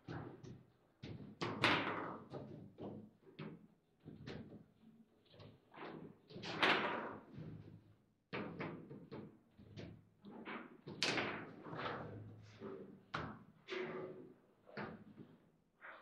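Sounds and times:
foosball ball knocks and clacks: 0.1s - 3.6s, 10.4s - 12.0s.

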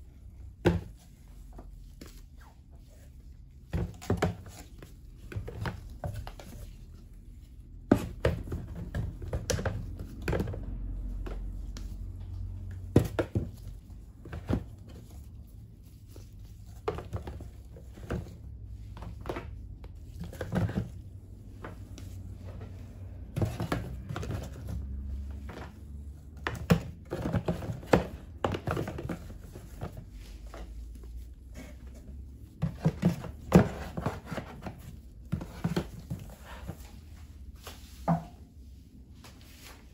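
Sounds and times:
plastic tubs knocking on cardboard: 3.7s - 6.8s, 7.8s - 15.2s, 16.7s - 30.6s, 32.1s - 36.8s.

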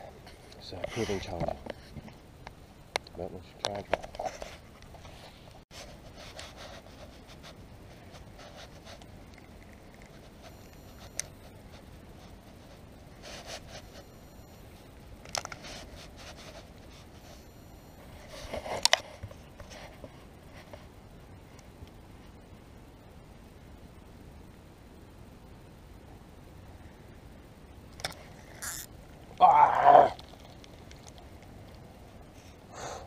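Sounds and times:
fishing rod and reel handling: 28.0s - 28.9s
sharp reel clicks: 28.6s - 28.9s.

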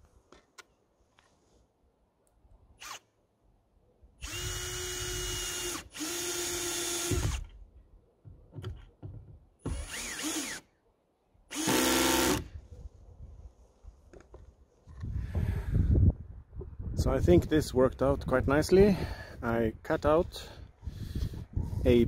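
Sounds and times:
cordless drill driving screws into wood: 2.8s - 3.1s, 4.2s - 7.6s, 9.6s - 10.7s, 11.5s - 12.6s.

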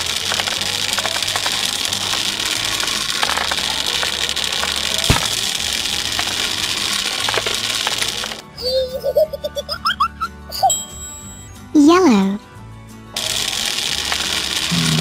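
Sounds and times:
balls tumbling clatter: 0.0s - 8.5s.

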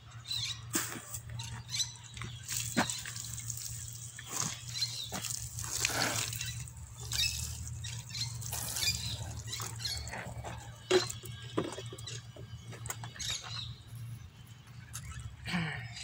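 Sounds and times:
water splashing onto plants: 2.3s - 10.4s.

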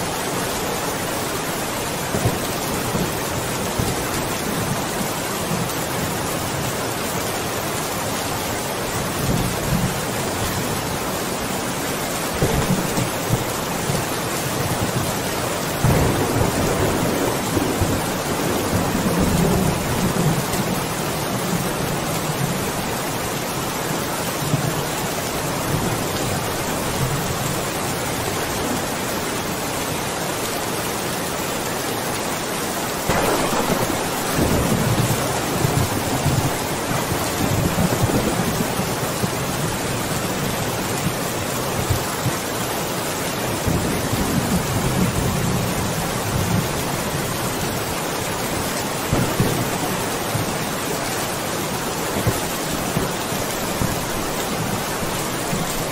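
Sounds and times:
steady rain falling: 0.0s - 55.9s
thunder crack: 15.8s - 19.0s, 33.1s - 38.8s, 49.1s - 49.8s
low thunder rumbling: 15.8s - 21.0s, 33.1s - 40.2s, 49.1s - 50.8s.

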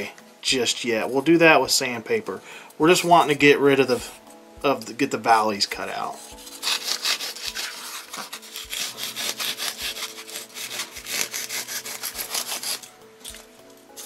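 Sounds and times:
knife sawing foam: 6.0s - 12.9s.

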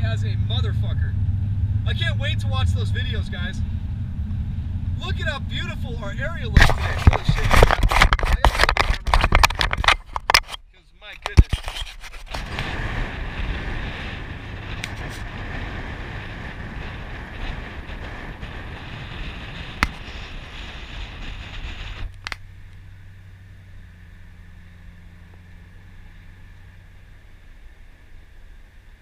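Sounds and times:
car engine hum: 0.0s - 10.6s, 12.2s - 29.0s
wind and road rush: 0.0s - 29.0s
sharp click: 6.6s - 12.0s, 22.1s - 22.4s.

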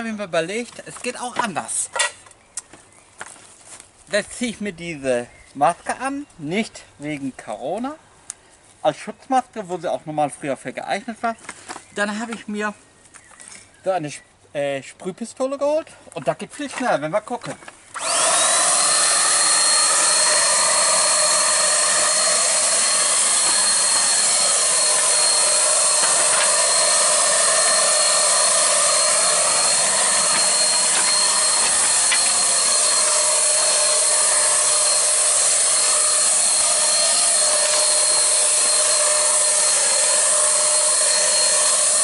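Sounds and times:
paint spray gun running: 18.0s - 42.0s.

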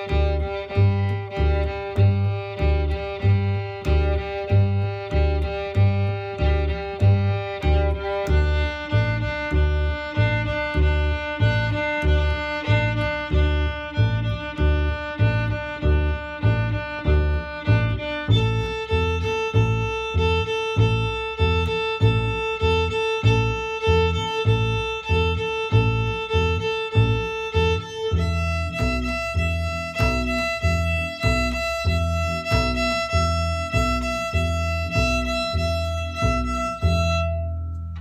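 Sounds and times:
double bass plucking: 0.0s - 38.0s
fiddle bowing open strings: 0.0s - 38.0s.

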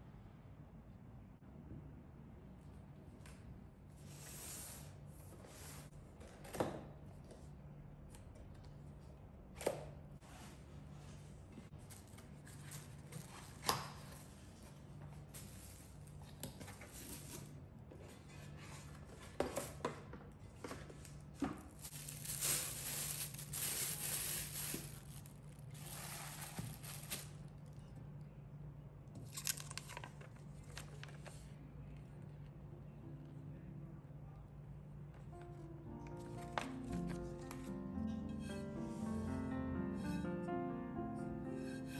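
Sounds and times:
plastic crinkling: 21.2s - 27.8s.

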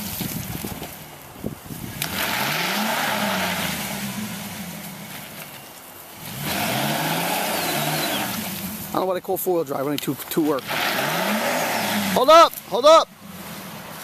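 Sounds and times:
pickup engine revving: 1.7s - 14.0s.

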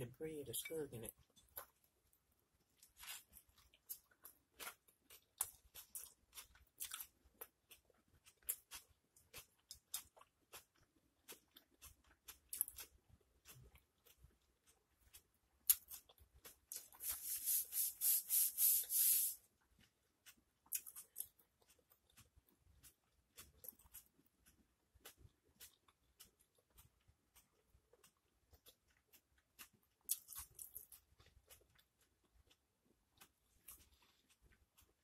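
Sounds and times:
wet mouth chewing smacks: 19.8s - 32.6s.

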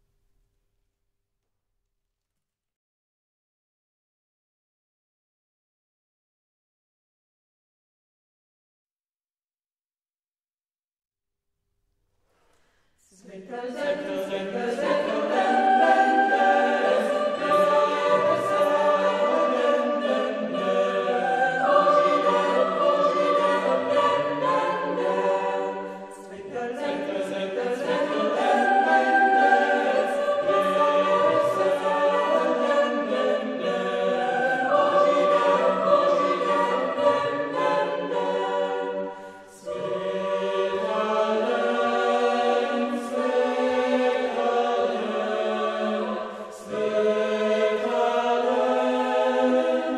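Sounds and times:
choir singing held chords: 13.2s - 49.9s.

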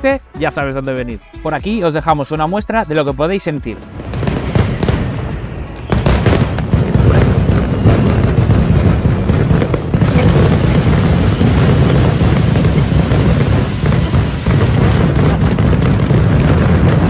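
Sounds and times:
firecrackers banging rapidly: 3.9s - 17.0s.

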